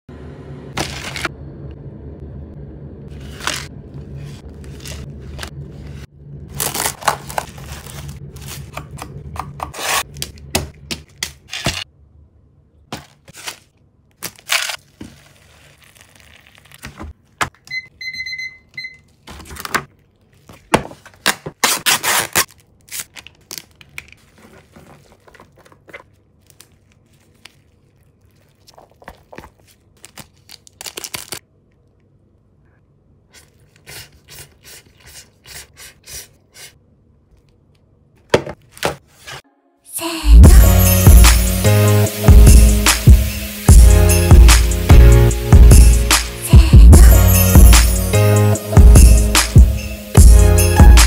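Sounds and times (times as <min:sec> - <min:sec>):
plastic wrapping crinkling and tearing: 0:06.5 - 0:08.7, 0:13.0 - 0:17.1, 0:19.5 - 0:31.4
digital kitchen timer beeping: 0:17.7 - 0:19.1.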